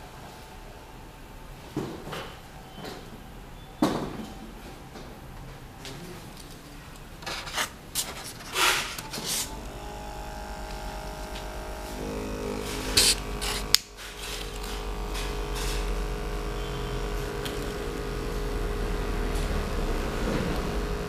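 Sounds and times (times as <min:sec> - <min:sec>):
model steam engine humming: 0:08.5 - 0:21.0.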